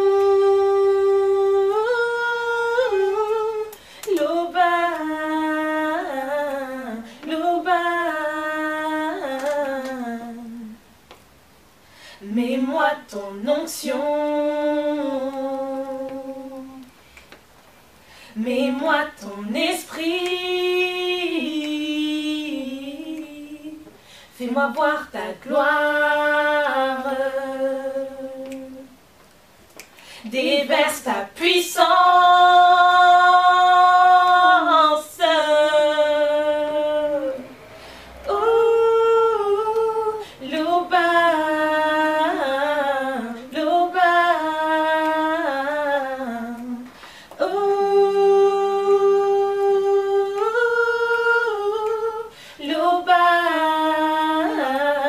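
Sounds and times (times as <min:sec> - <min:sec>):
women singing a cappella: 0:00.0 - 0:11.1, 0:12.2 - 0:17.1, 0:18.2 - 0:29.1, 0:30.0 - 0:55.0.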